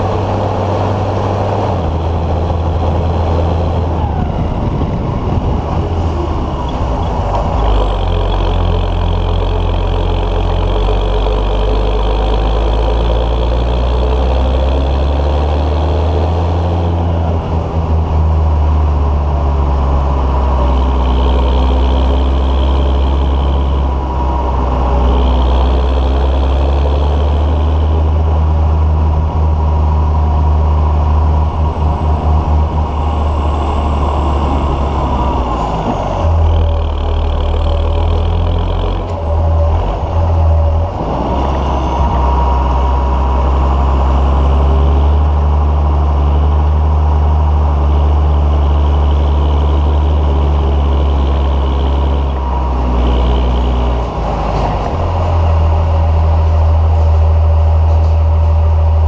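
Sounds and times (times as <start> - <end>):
tractor diesel engine running: 0.0 - 59.0
high whine: 17.0 - 45.8.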